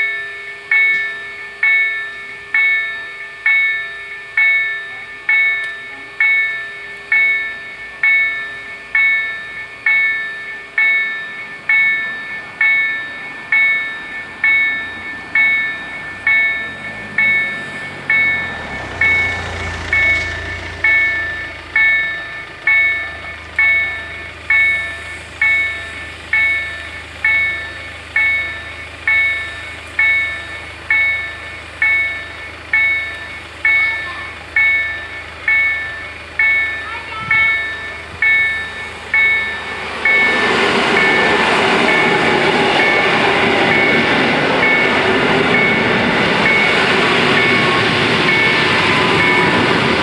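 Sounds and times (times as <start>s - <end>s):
level crossing warning bells: 0.0s - 50.0s
car idling: 19.0s - 50.0s.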